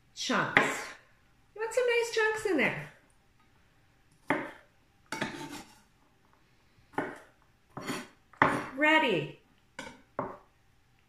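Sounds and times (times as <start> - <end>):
knife chopping on board: 4.2 - 5.7, 6.9 - 8.8.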